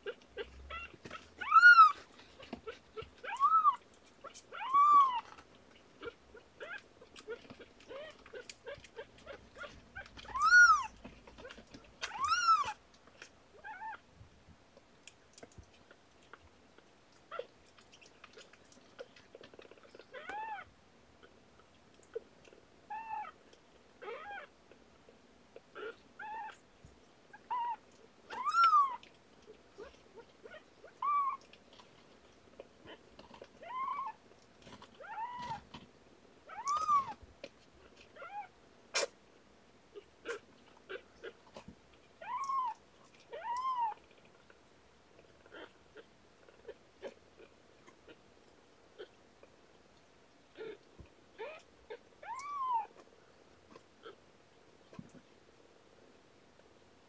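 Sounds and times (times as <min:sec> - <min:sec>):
kittens mewing: 0:00.0 - 0:05.4, 0:06.0 - 0:12.8, 0:27.4 - 0:29.0, 0:36.5 - 0:37.2
soft small ticks: 0:14.7 - 0:20.5, 0:21.2 - 0:22.6, 0:40.3 - 0:45.8.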